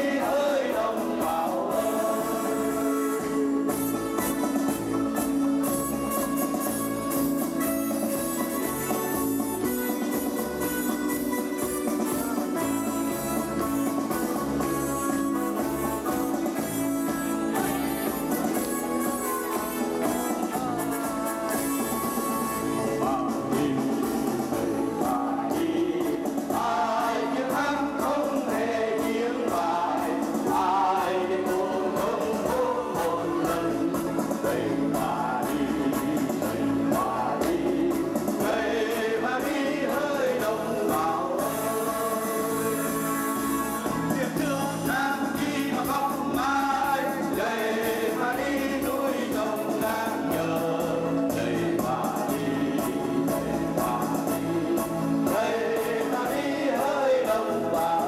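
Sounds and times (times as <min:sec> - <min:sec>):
men singing in unison: 0:00.0 - 0:04.0, 0:20.4 - 0:58.0
instrumental backing: 0:00.0 - 0:58.0
music: 0:00.0 - 0:58.0.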